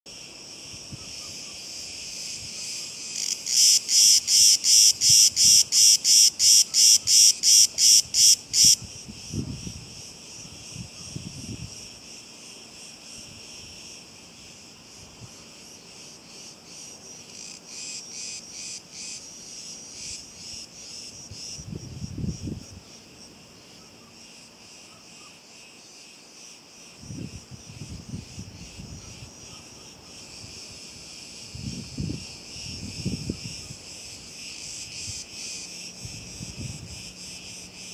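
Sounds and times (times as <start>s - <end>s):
cicadas buzzing: 0.1s - 37.9s
nearby cicada pulsing rapidly: 0.1s - 37.9s.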